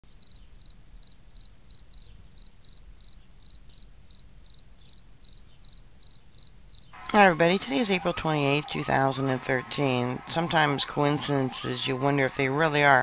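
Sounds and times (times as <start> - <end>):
cricket chirping: 0.1 - 7.1.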